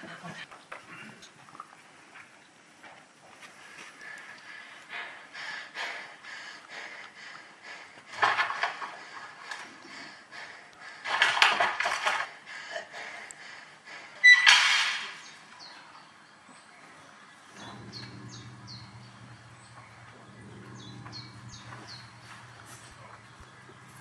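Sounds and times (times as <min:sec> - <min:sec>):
high bird chirps: 0:17.5 - 0:24.0
low steady drone: 0:17.5 - 0:24.0.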